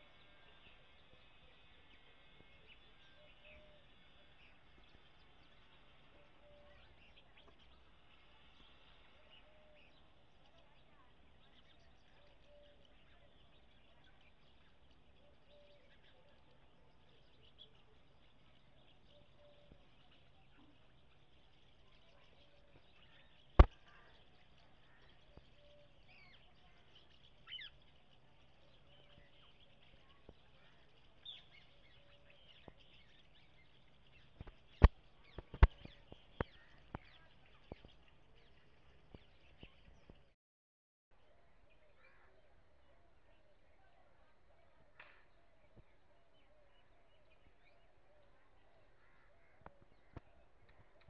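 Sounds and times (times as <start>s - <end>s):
birds chirping: 0.0s - 40.4s.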